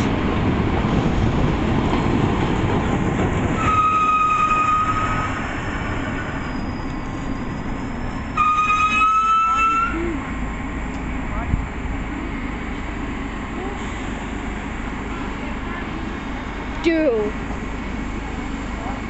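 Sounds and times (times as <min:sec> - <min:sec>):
train rumbling: 0:00.0 - 0:19.0
train horn blasts: 0:03.6 - 0:05.4, 0:08.4 - 0:10.0.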